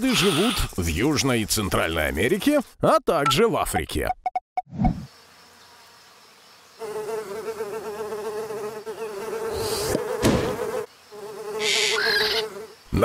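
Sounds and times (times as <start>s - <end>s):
cartoon fly buzzing: 6.8s - 12.9s.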